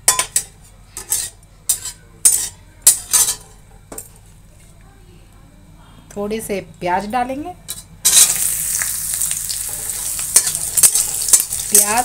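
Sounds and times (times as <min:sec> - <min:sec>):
metal spatula scraping a pan: 0:01.0 - 0:03.4, 0:07.7 - 0:08.5, 0:09.7 - 0:12.0.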